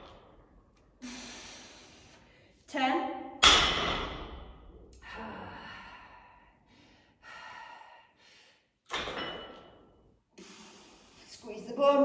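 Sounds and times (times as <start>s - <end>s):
woman breathing heavily: 0.8s - 2.6s, 4.9s - 8.9s, 10.3s - 11.3s.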